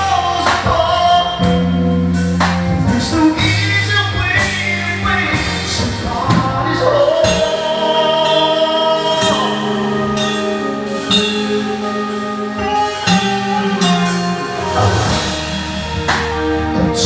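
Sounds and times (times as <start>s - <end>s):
man singing through pa: 0.0s - 1.8s, 2.8s - 14.0s
live band keyboard and guitars: 0.0s - 17.0s.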